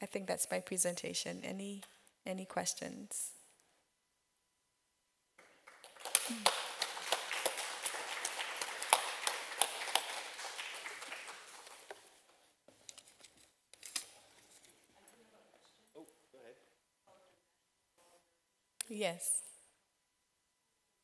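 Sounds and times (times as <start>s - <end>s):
audience applauding: 5.4s - 12.2s.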